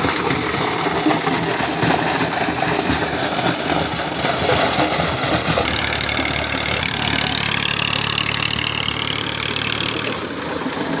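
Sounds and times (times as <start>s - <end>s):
rotavator churning soil: 0.0s - 11.0s
tractor diesel engine running: 0.0s - 11.0s.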